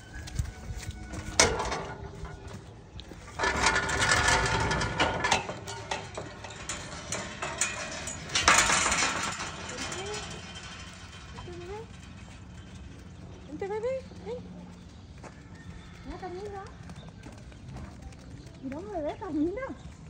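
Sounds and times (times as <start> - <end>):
metal gate rattling and scraping: 0.0 - 16.6
metal gate clanking: 0.5 - 13.8.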